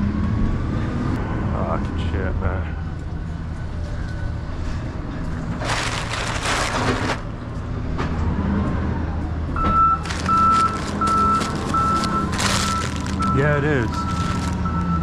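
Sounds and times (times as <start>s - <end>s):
low engine hum: 0.0s - 15.0s
rustling noise: 5.5s - 7.3s, 10.0s - 14.8s
vehicle backup alarm beeping: 9.6s - 15.0s.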